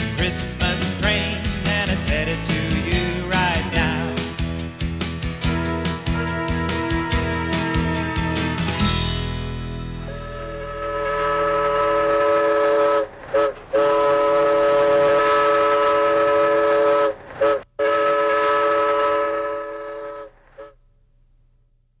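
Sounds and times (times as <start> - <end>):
train whistle blasts: 5.4 - 8.9, 10.0 - 20.8.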